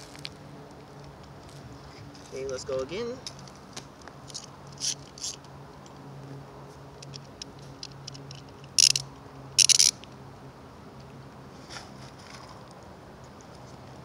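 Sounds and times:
plastic clicks and rattles: 7.0s - 9.0s, 9.6s - 10.0s.

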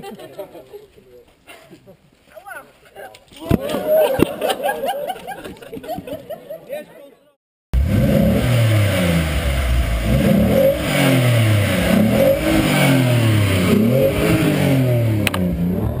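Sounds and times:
car engine revving: 7.8s - 16.0s.

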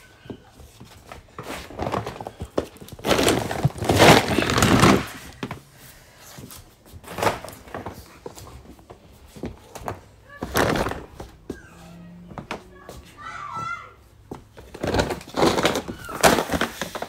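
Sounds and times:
handling rustling and thuds: 0.2s - 5.6s.

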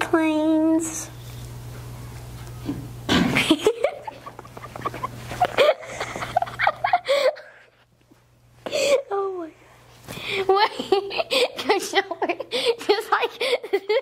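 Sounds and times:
girls laughing and giggling: 3.4s - 7.9s, 10.4s - 14.0s.

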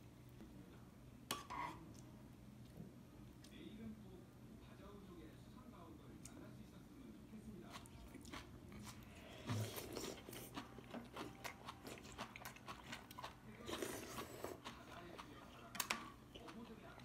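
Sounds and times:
person chewing food: 7.6s - 17.0s.

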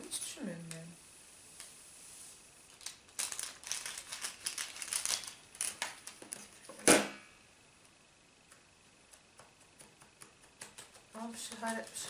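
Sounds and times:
plastic sachets crinkling: 2.7s - 6.6s.

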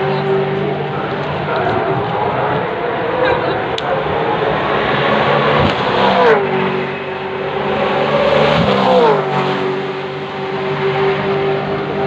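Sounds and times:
racing cars at speed: 0.0s - 12.0s.

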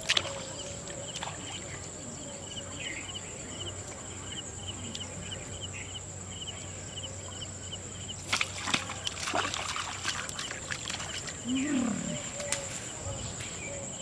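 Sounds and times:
fish splashing and thrashing: 8.2s - 12.2s.

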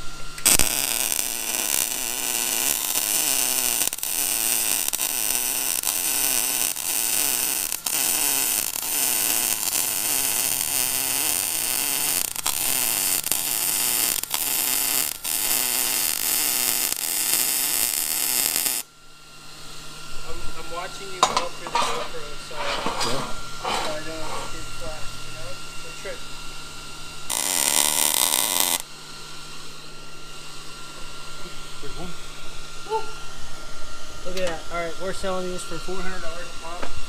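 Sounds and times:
welder arc crackling: 0.0s - 18.9s, 27.3s - 28.9s.

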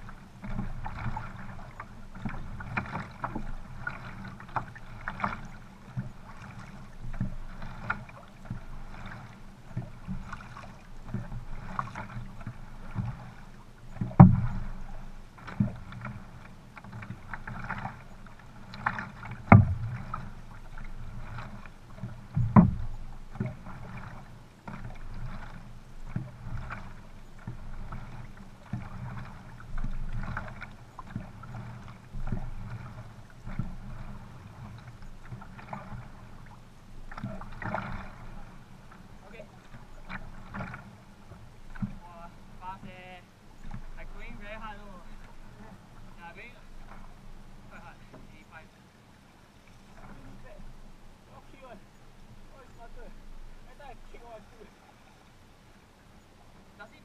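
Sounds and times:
paddle strokes splashing: 0.0s - 57.0s
water rushing along hull: 0.0s - 57.0s
loud splashes or knocks: 14.0s - 14.7s, 18.8s - 20.3s, 21.2s - 25.5s.

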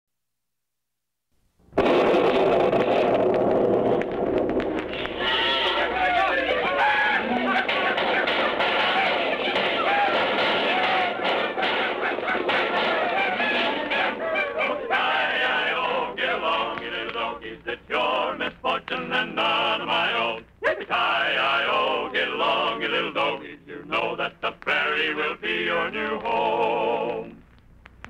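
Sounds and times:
men singing on old radio: 5.6s - 27.4s.

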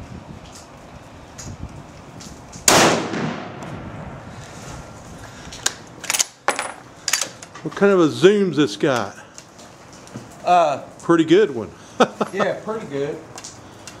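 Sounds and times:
gunshot with echo: 2.7s - 3.7s.

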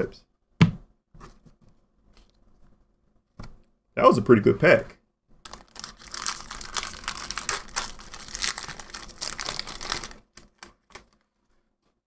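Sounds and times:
foil wrapper crinkling: 5.4s - 11.5s.

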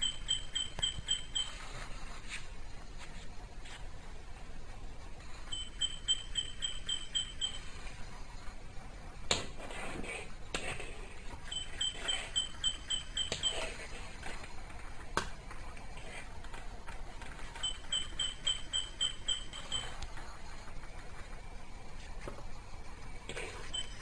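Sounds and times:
toy electronic chirping pips: 0.0s - 1.7s, 5.4s - 7.8s, 11.5s - 13.9s, 17.6s - 20.0s, 23.6s - 24.0s.

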